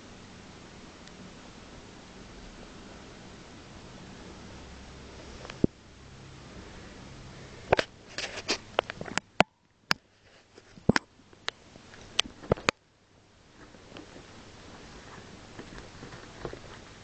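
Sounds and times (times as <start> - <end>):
cats scuffling: 13.5 - 17.0
paws and claws tapping: 13.6 - 17.0.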